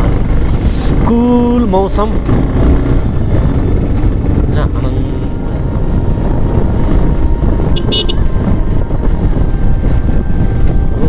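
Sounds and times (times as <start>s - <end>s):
motorcycle engine: 0.0s - 11.0s
wind rumble on microphone: 0.0s - 11.0s
vehicle horn beep: 7.6s - 8.6s.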